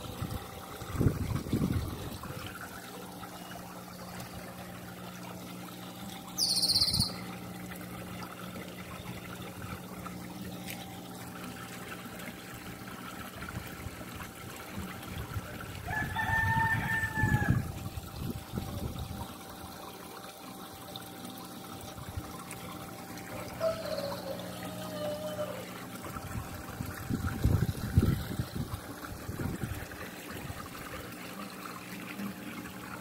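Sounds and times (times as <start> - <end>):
pond water trickling: 0.0 - 33.0
bird call: 6.4 - 7.2, 23.6 - 25.6
high loud chirp: 6.4 - 7.2.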